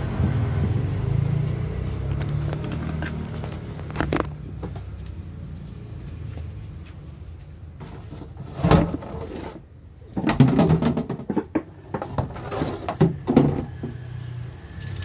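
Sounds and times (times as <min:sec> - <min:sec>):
knocks and scraping: 0:00.2 - 0:05.7, 0:06.7 - 0:14.2.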